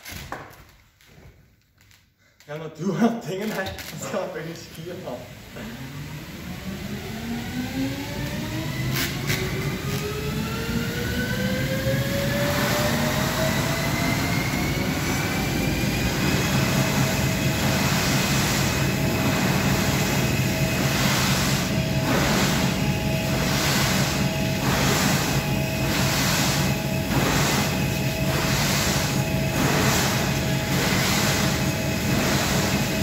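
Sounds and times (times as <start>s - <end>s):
treadmill motor whine: 4.7s - 33.0s
low hum: 5.3s - 33.0s
skis scraping on carpet: 29.6s - 33.0s.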